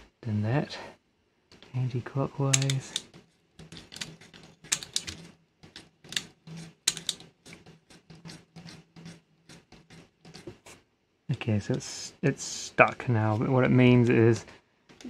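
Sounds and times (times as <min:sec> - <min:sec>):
plastic gears clicking: 0:02.5 - 0:09.2.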